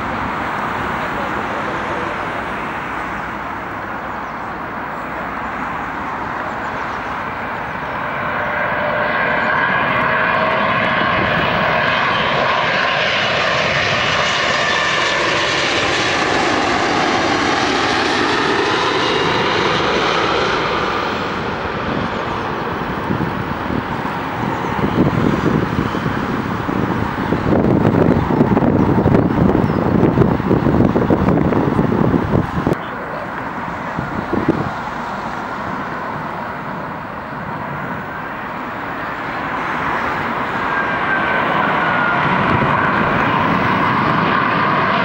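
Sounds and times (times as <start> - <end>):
jet plane passing overhead: 0.0 - 45.0
car passing: 32.1 - 45.0.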